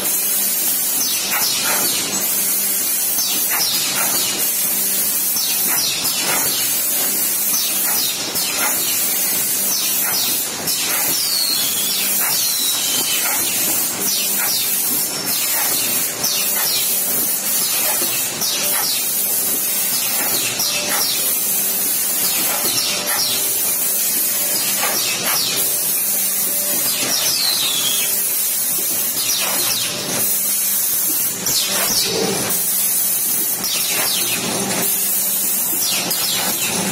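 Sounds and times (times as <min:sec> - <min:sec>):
machine hiss: 0:00.0 - 0:36.9
machine clicks and knocks: 0:03.2 - 0:25.8.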